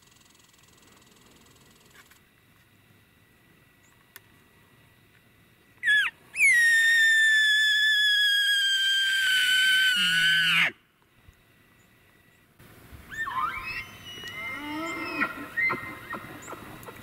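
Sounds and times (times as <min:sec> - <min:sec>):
elk bugling: 0:13.1 - 0:17.0.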